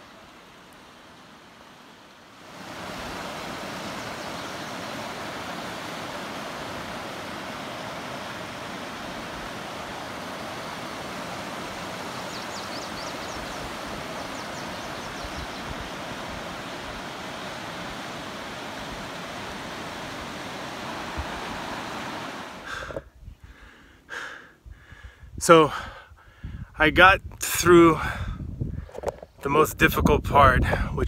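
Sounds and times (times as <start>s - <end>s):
creek water rushing over rocks: 0.0s - 23.0s
high bird chirps: 12.2s - 15.7s.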